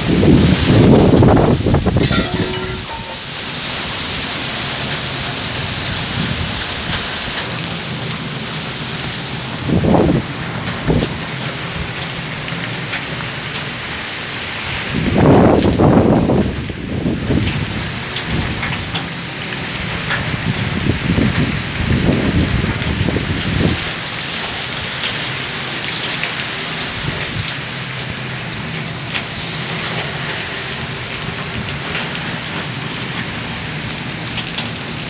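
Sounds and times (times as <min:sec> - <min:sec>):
raindrop hits: 0:00.0 - 0:04.1
strong wind gusts buffeting microphone: 0:00.0 - 0:04.1, 0:05.5 - 0:07.4, 0:09.4 - 0:12.0, 0:14.7 - 0:19.0, 0:19.6 - 0:24.0
rain hissing: 0:00.0 - 0:35.0.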